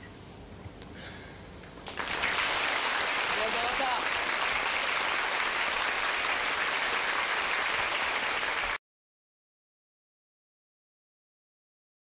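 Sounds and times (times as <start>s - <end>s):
audience applauding: 1.8s - 8.8s.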